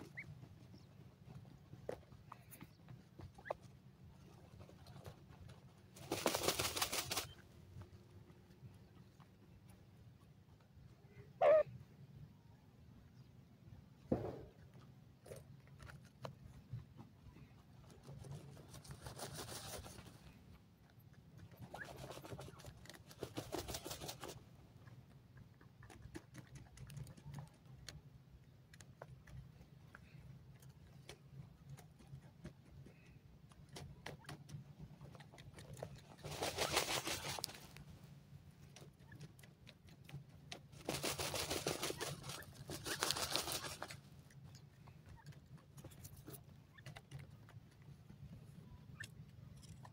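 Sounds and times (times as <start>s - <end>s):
birds scratching dry soil: 0.0s - 9.8s, 14.6s - 49.9s
low steady hum: 26.8s - 49.9s.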